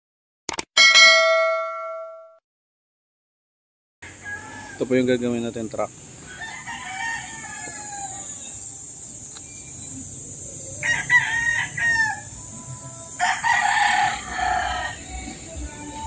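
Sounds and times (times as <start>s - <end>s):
rooster crowing: 4.0s - 5.0s, 6.2s - 8.9s, 10.6s - 15.9s.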